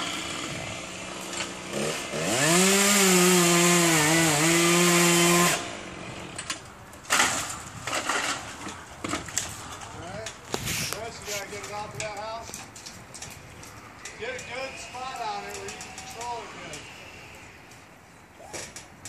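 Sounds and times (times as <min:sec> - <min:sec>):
chainsaw revving and cutting: 0:00.0 - 0:06.4.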